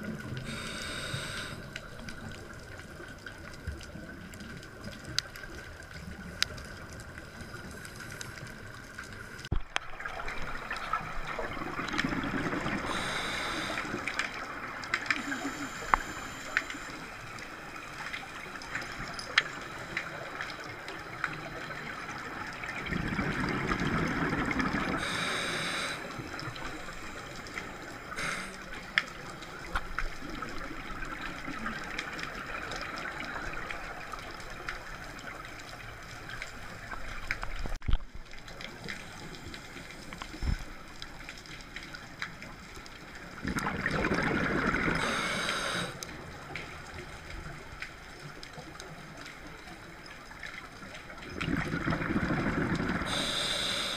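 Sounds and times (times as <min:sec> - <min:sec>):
steady hiss: 0:00.2 - 0:02.7, 0:12.7 - 0:22.4, 0:24.8 - 0:31.7, 0:44.9 - 0:46.8, 0:52.9 - 0:53.9
exhaled air bubbles underwater: 0:09.8 - 0:16.4, 0:20.1 - 0:28.5, 0:43.3 - 0:46.0, 0:50.8 - 0:53.9.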